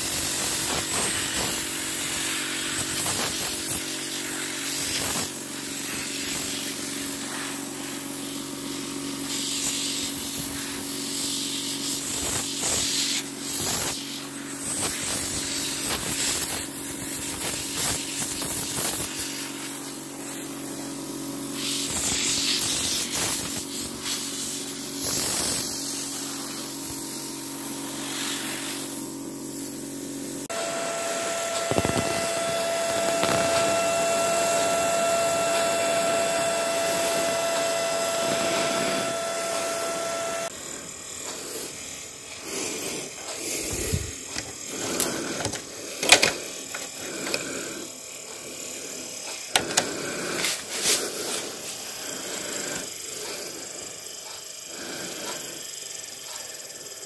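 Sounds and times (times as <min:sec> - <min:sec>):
cooling fans humming: 0:12.2 - 0:57.0.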